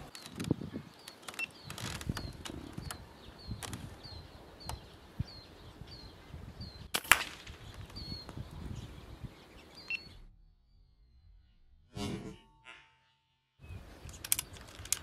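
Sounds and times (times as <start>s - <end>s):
sparrow chirps: 0.0s - 6.9s, 7.6s - 11.5s
air rifle shot crack: 6.9s - 7.7s.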